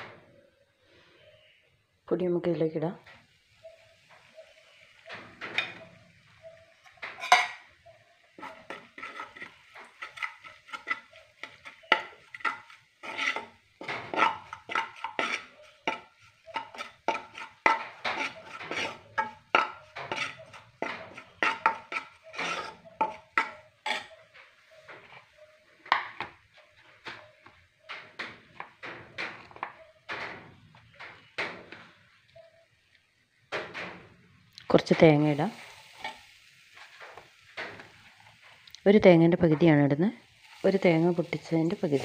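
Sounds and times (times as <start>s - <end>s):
metal spoon scraping frying pan: 6.7s - 26.8s, 34.8s - 38.3s
spoon knocking against pan: 6.8s - 7.7s, 8.4s - 24.2s, 25.8s - 31.9s.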